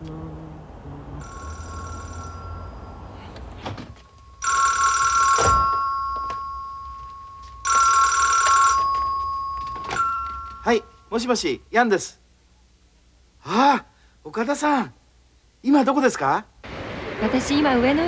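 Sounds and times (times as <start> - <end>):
telephone ringing: 1.2 - 11.1.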